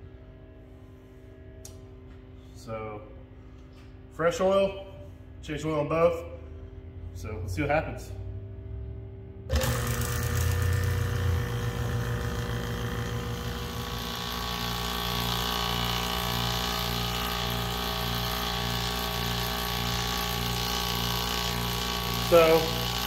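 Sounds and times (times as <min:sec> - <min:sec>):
vacuum pump running: 0:08.5 - 0:23.0.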